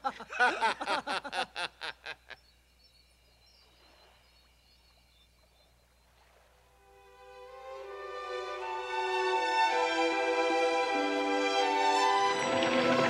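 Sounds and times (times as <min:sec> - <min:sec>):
man laughing heartily: 0:00.0 - 0:02.5
background ambience: 0:00.0 - 0:13.0.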